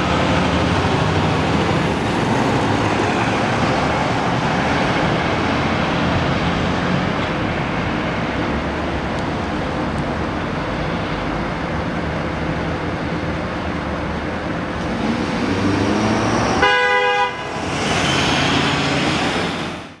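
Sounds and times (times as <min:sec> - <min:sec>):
fire truck engine: 0:00.0 - 0:20.0
truck horn blast: 0:16.6 - 0:18.7.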